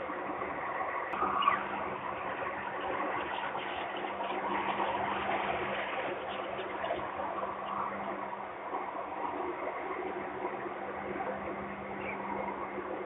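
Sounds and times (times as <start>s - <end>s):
steady hum and hiss: 0.0s - 13.0s
falcon chick peep: 1.2s - 1.8s.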